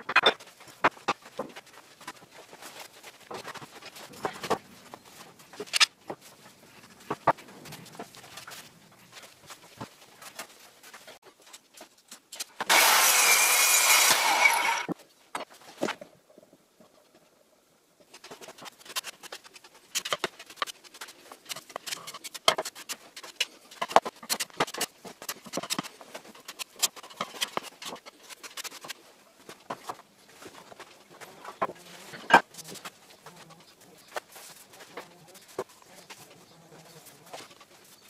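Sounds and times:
electric planer whirring: 12.7s - 14.9s.

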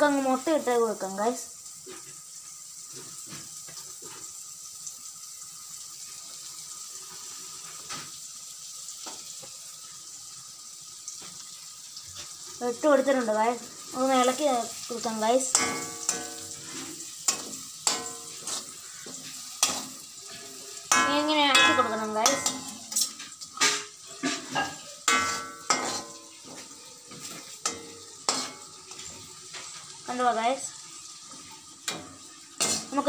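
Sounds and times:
faint oil sizzle: 0.0s - 33.0s
metal spoon scraping a pan: 14.7s - 29.9s, 31.3s - 33.0s.

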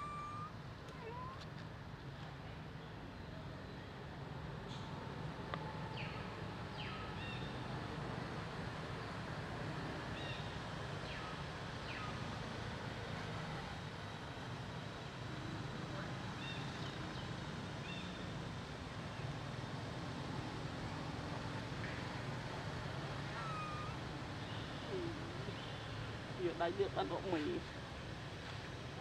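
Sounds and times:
short high chirps: 0.0s - 0.5s
outdoor background rumble: 0.0s - 29.0s
quick falling calls: 23.3s - 24.0s.

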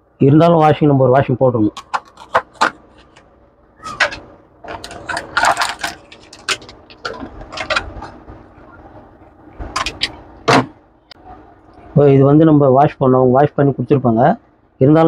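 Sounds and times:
plastic tray crinkling: 1.7s - 3.3s, 3.9s - 8.2s.

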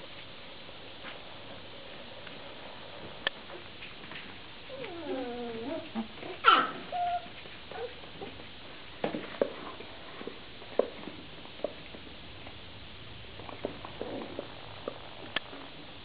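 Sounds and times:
puppy yelping: 4.7s - 8.0s
puppy whining: 4.7s - 8.4s.

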